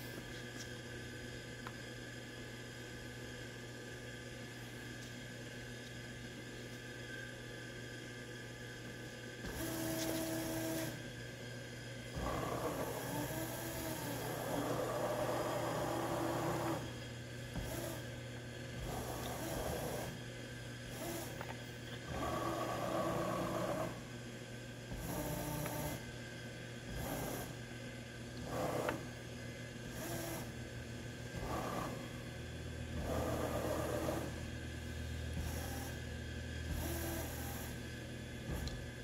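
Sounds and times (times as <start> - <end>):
continuous low hum: 0.0 - 39.0
motor whine: 4.2 - 39.0.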